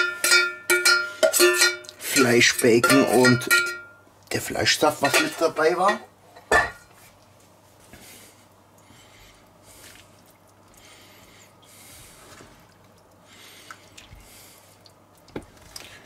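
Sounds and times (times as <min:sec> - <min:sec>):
wooden spoon squelching in stew: 0:08.5 - 0:16.0.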